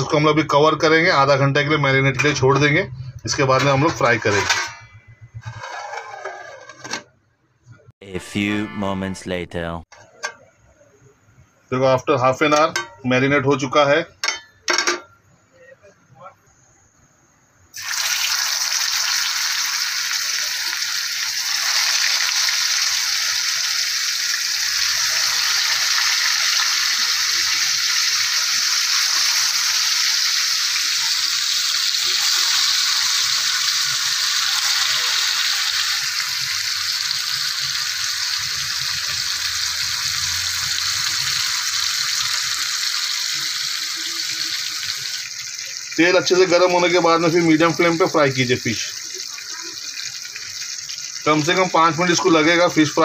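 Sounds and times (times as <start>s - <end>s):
fish sizzling in oil: 17.7s - 53.0s.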